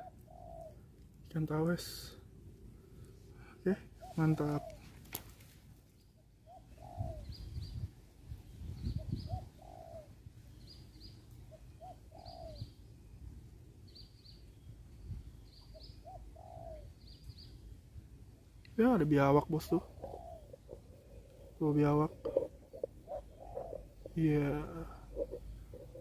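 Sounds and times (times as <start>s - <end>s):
dove cooing: 0.0s - 1.0s, 3.7s - 5.0s, 6.4s - 7.9s, 8.8s - 10.3s, 11.5s - 12.8s, 15.6s - 17.1s, 19.0s - 26.0s
small bird chirping: 5.9s - 17.8s, 18.6s - 26.0s.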